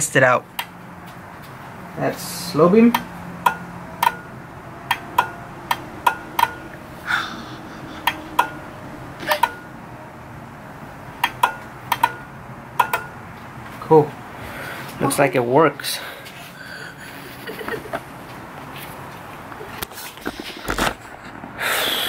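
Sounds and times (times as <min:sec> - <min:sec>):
switch and relay clicks: 0:02.9 - 0:04.3, 0:04.9 - 0:06.6, 0:08.0 - 0:08.6, 0:09.2 - 0:09.7, 0:11.2 - 0:13.2.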